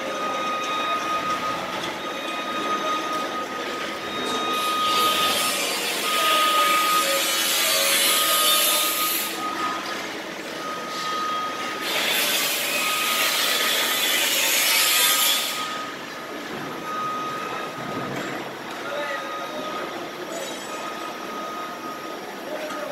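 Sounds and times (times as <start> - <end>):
machine warning beep: 0.0 - 22.9
power tool grinding: 4.6 - 9.4, 11.8 - 15.8.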